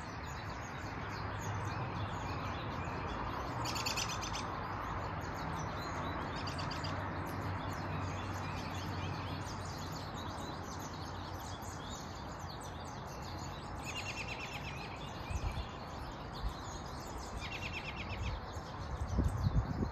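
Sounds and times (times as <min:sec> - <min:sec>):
songbirds chirping: 0:00.0 - 0:19.9
steady outdoor hiss: 0:00.0 - 0:19.9
rapid bird trills: 0:02.1 - 0:04.8.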